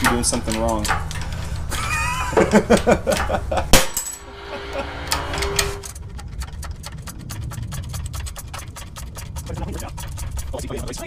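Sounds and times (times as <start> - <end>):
metal clank: 2.4 - 6.0.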